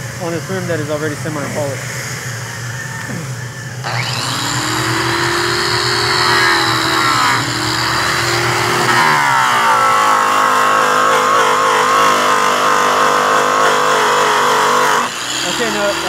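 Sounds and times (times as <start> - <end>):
electric polisher motor whine: 2.2 - 16.0.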